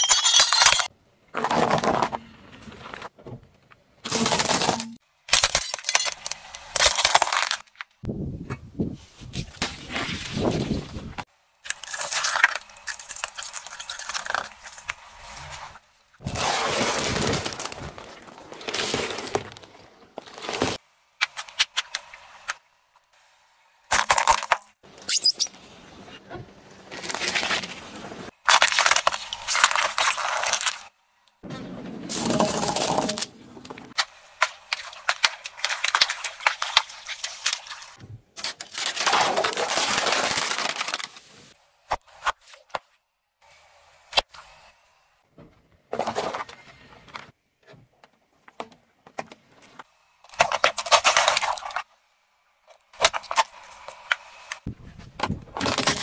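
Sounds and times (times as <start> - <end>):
tyre crushing objects: 15.4 - 20.8
plastic cups cracking: 32.1 - 41.2.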